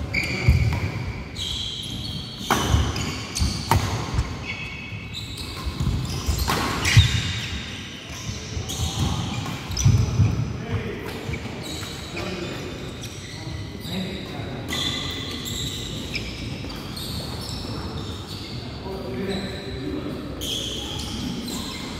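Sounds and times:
shoes squeaking: 0:00.0 - 0:21.9
racket hitting shuttlecock: 0:02.4 - 0:04.4, 0:05.5 - 0:07.5.

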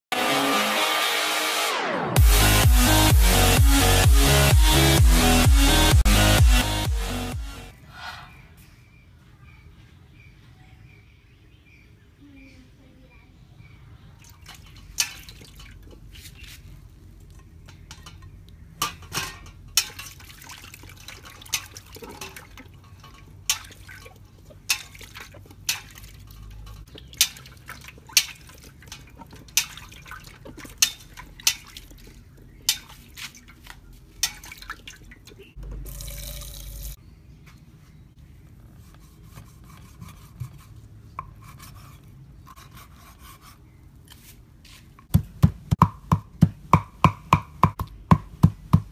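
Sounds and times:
water splashing and dripping: 0:14.2 - 0:16.1, 0:19.0 - 0:37.0.

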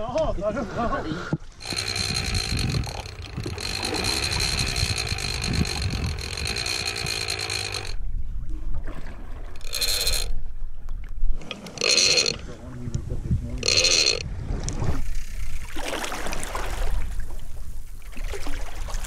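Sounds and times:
fishing reel clicker ratcheting: 0:01.6 - 0:08.0, 0:09.6 - 0:10.4, 0:11.5 - 0:12.4, 0:13.6 - 0:14.2.

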